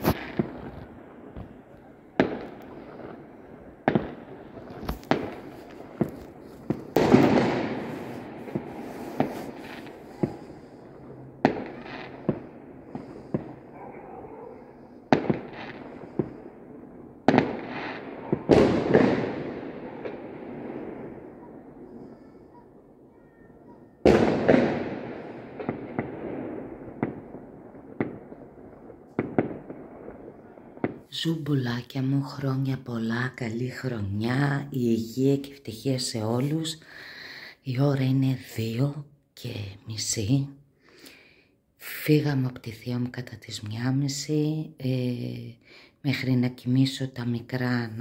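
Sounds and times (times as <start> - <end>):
fireworks and firecrackers banging: 0.0 - 31.1.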